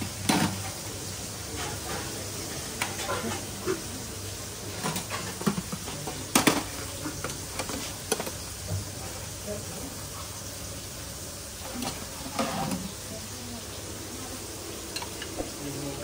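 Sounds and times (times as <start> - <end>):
dishes clattering: 0.0 - 0.8, 1.5 - 3.9, 4.7 - 8.4, 14.9 - 15.6
kitchen hum: 0.0 - 16.0
metal spoon scraping pots: 11.8 - 12.9.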